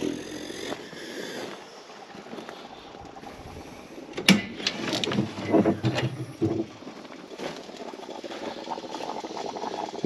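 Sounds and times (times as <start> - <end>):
metal clanks and rattles: 4.2 - 6.7.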